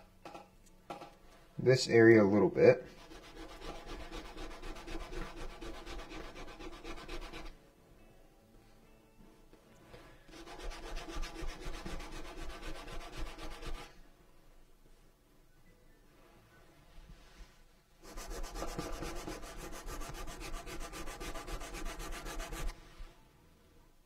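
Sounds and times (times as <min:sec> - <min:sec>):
sanding stick rubbing leather edge: 0:03.0 - 0:07.5, 0:10.3 - 0:13.9, 0:18.0 - 0:22.8.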